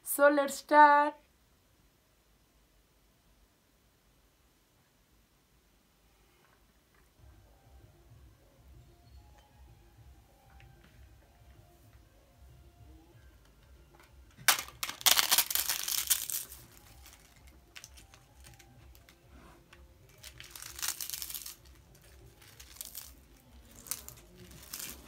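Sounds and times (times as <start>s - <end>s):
crisp papad crackling by hand: 14.5s - 19.2s, 20.0s - 25.0s.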